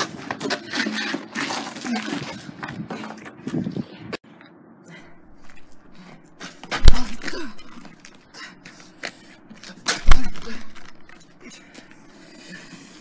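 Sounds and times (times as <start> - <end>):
heavy kick impacts on body: 6.6 - 7.8, 10.0 - 11.0.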